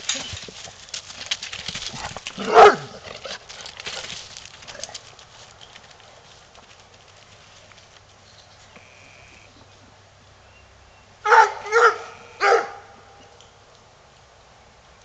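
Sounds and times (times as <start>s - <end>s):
dog barking loudly: 2.4s - 3.0s, 11.2s - 13.0s.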